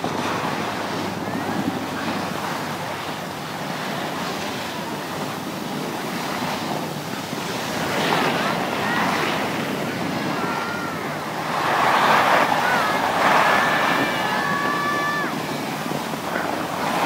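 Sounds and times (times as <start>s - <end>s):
wind rushing on microphone: 0.0s - 17.0s
skis scraping over snow: 11.5s - 15.3s.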